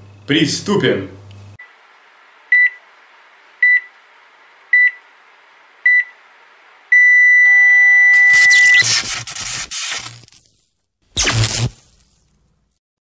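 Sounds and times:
short high electronic beeps: 0:07.6 - 0:09.2.

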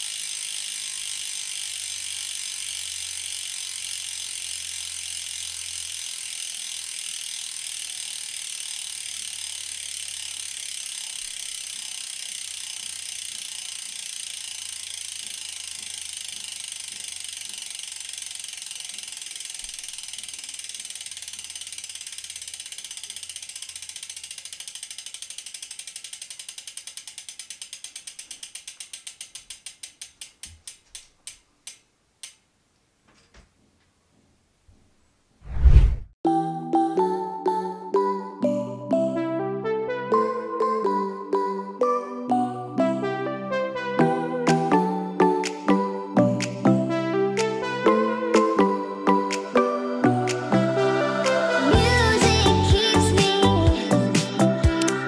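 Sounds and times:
bicycle freehub clicking: 0:00.0 - 0:32.5, 0:51.3 - 0:55.0.

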